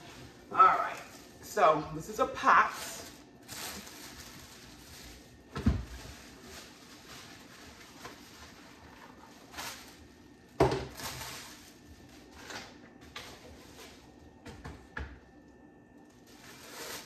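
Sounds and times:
plastic wrapping crinkling: 2.3 - 14.0, 16.0 - 17.0.

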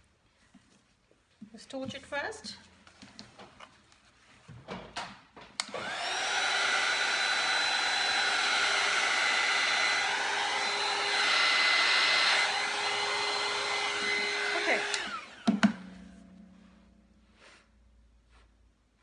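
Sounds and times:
heat gun whine: 5.6 - 15.9
heat gun fan blowing: 5.6 - 16.4.

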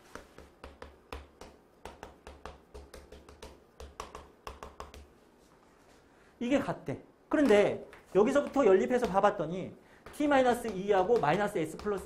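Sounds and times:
chalk tapping and scratching: 0.0 - 5.2, 7.4 - 9.4, 10.0 - 12.0.

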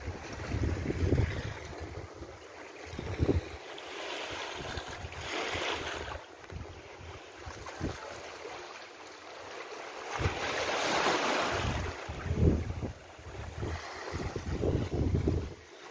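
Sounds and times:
wind rumbling on microphone: 0.0 - 3.6, 4.5 - 8.1, 10.1 - 10.7, 11.4 - 15.7
waves washing on rocky shore: 2.9 - 15.9.

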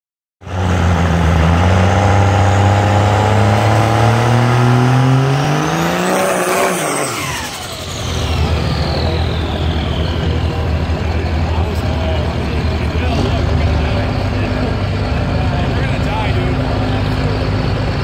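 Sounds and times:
diesel truck engine revving: 0.4 - 18.0
high turbo whistle: 5.2 - 11.9.

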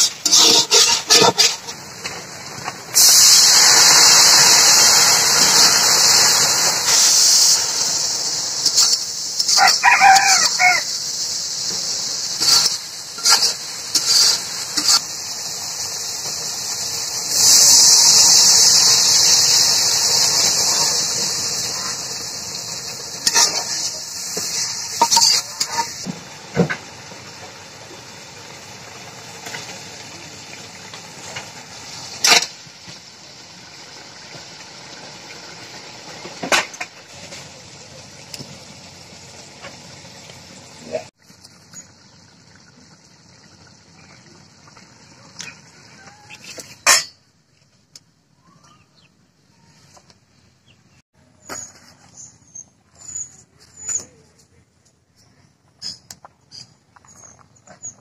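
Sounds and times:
water sizzling in hot pan: 0.0 - 47.2
rooster crowing: 9.5 - 11.0.

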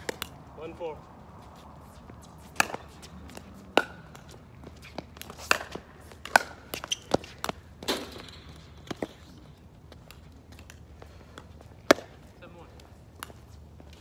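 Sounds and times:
ball bouncing on hard court: 2.6 - 8.2
pickleball paddle hits: 5.2 - 7.6.

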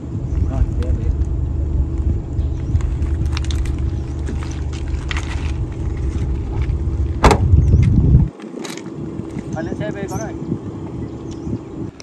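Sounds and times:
low rumble: 0.0 - 12.0
rear hatch slamming shut: 6.4 - 7.9.

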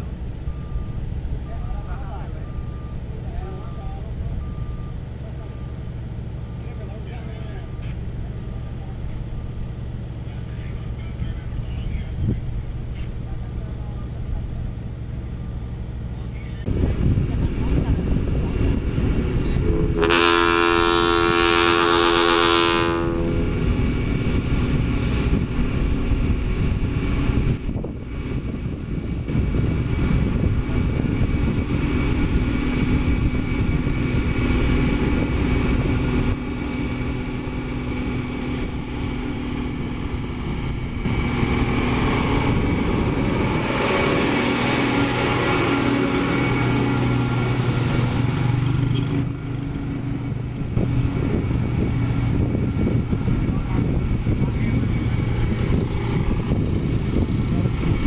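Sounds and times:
diesel truck engine driving past: 0.0 - 58.0
truck air horn blast: 19.7 - 23.8, 43.8 - 47.6.

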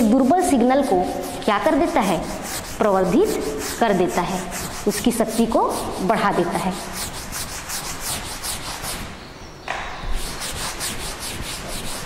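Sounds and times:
rubbing strokes on a board: 0.0 - 9.2, 10.0 - 12.0.

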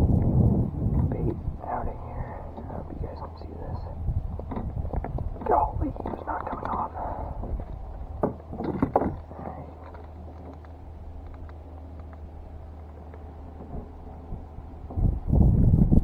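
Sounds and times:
low steady hum: 0.0 - 16.0
wind buffeting microphone: 0.0 - 16.0
gear handling clicks and knocks: 4.3 - 15.0.

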